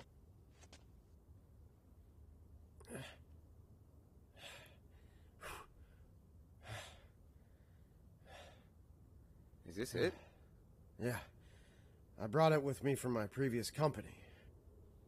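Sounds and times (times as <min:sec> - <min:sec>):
man breathing faintly: 0:04.3 - 0:09.4, 0:10.0 - 0:12.2, 0:14.1 - 0:15.0.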